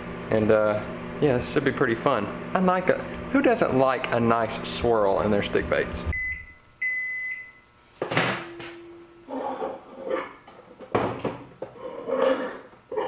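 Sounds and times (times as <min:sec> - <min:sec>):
microwave beep: 0:06.1 - 0:07.7.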